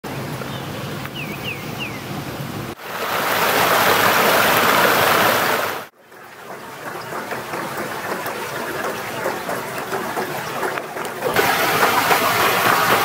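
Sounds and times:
bird chirps: 0.4s - 2.1s
waterfall splashing over rocks: 2.8s - 5.9s, 10.4s - 13.0s
rocky stream flowing: 2.8s - 13.0s.

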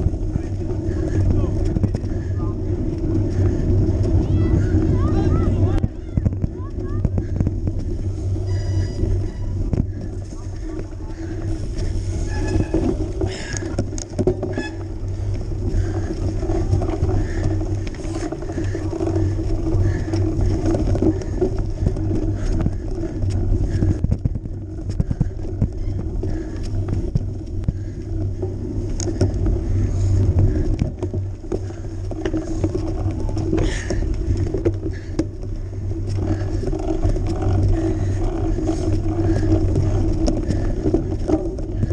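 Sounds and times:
bike rattling over bumps: 0.0s - 41.9s
bike tyres rumbling on dirt: 0.0s - 41.9s.

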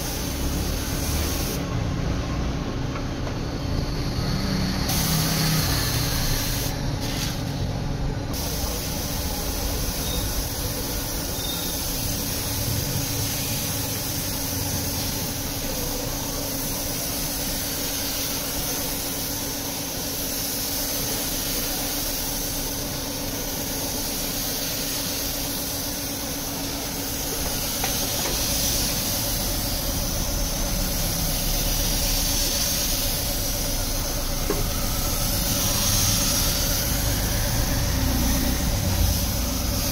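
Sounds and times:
paint spray gun hissing: 0.0s - 1.7s, 4.5s - 7.7s, 8.3s - 39.9s
steady low hum: 21.8s - 39.9s.

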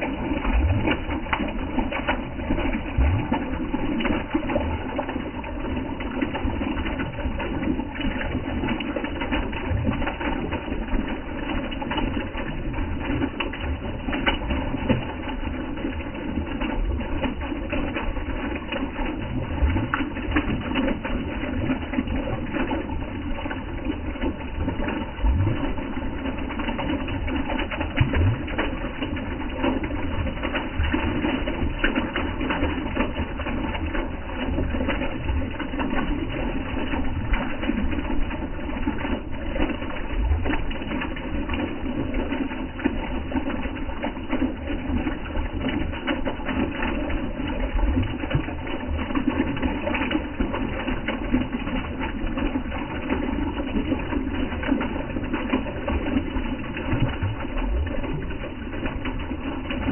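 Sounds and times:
water splashing into a pool: 0.0s - 59.9s.

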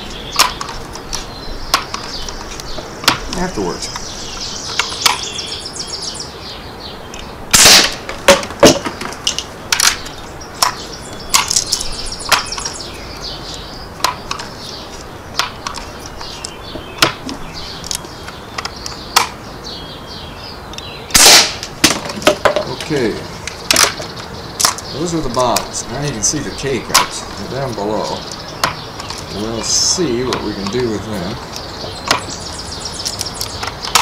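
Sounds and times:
air rifle shot cracking: 7.5s - 8.9s, 21.1s - 22.0s.

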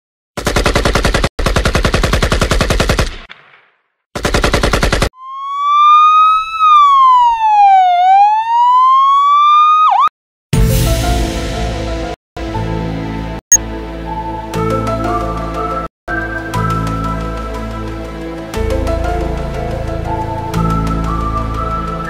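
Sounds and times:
automatic gunfire: 0.4s - 5.1s
police siren wailing: 5.2s - 10.1s.

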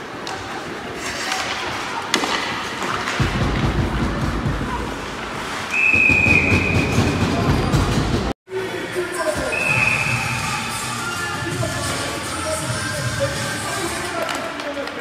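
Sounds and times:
skates rumbling against boards: 0.2s - 8.3s
steady high whistle: 5.7s - 7.4s, 9.5s - 11.6s.

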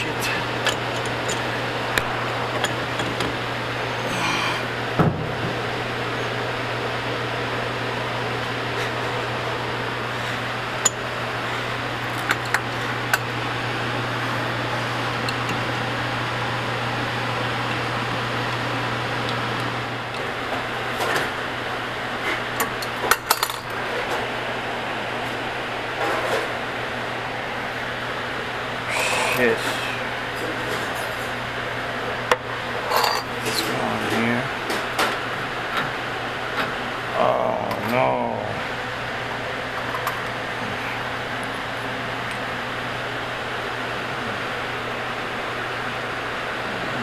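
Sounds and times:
fan droning: 0.0s - 47.0s
low mechanical hum: 0.0s - 47.0s.

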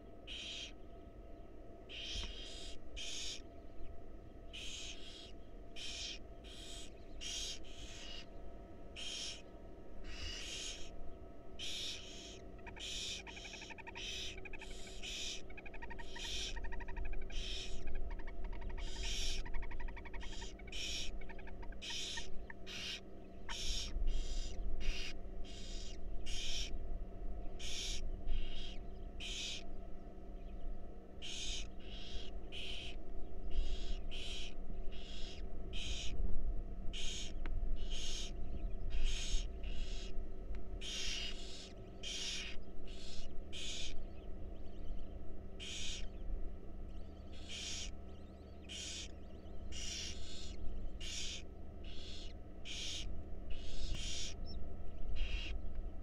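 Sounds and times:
owl nestlings hissing: 1.9s - 3.4s, 4.6s - 8.2s, 9.0s - 9.4s, 10.0s - 10.9s, 11.6s - 17.8s, 18.8s - 21.1s, 21.8s - 26.7s, 27.6s - 29.6s, 31.2s - 32.9s, 33.5s - 36.1s, 36.9s - 38.3s, 39.0s - 40.1s, 40.8s - 44.0s, 45.6s - 46.0s, 47.3s - 47.9s, 48.7s - 49.1s, 49.7s - 54.4s, 55.2s - 55.5s.

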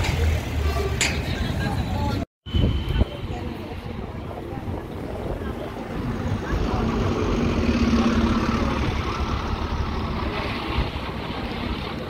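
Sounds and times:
bus engine rumble: 2.8s - 12.0s.

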